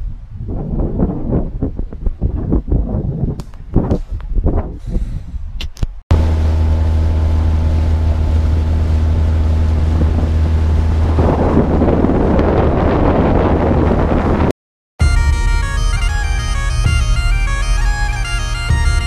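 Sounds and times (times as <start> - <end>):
rushing wind and water: 0.0 - 14.5
outboard motor running: 6.1 - 14.5.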